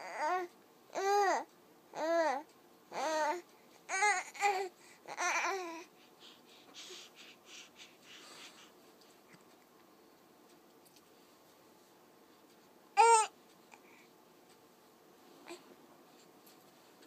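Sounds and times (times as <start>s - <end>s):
baby cooing: 0.0s - 5.9s, 13.0s - 13.3s
baby breathy sounds: 3.0s - 9.4s.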